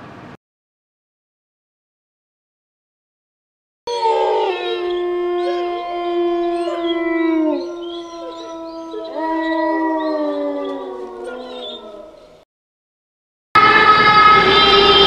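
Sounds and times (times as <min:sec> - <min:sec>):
eerie howling ghost wail: 0:03.9 - 0:12.3, 0:13.6 - 0:15.0.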